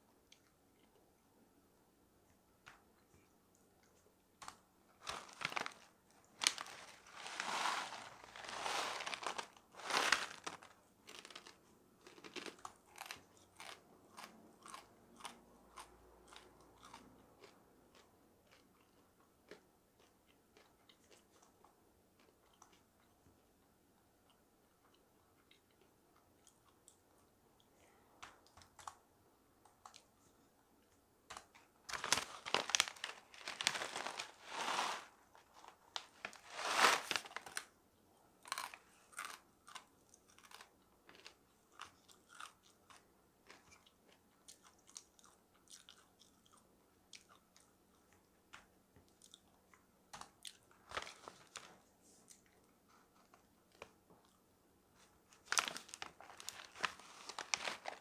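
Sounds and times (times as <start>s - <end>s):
loud crunching: 5.0s - 11.5s.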